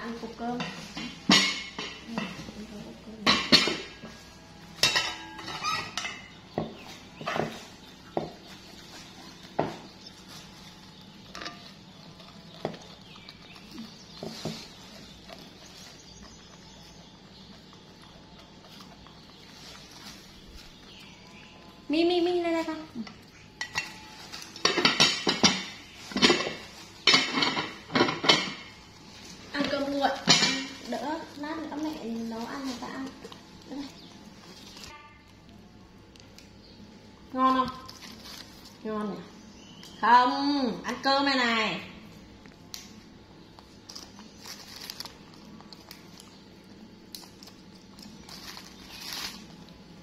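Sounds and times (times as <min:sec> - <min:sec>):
plastic bags crinkling: 0:07.0 - 0:17.5, 0:28.8 - 0:35.0, 0:43.5 - 0:50.0
vegetable stems snapping: 0:42.5 - 0:46.4.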